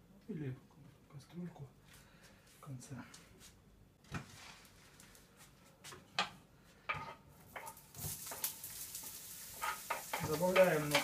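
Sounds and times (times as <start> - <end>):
utensils knocking on frying pan: 6.2 - 11.0
onion sizzling in hot oil: 7.4 - 11.0.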